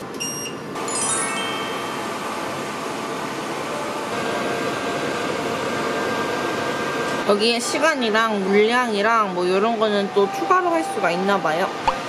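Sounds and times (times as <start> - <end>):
appliance beep: 0.1 - 2.6, 10.0 - 11.7
descending electronic chime: 0.8 - 2.6.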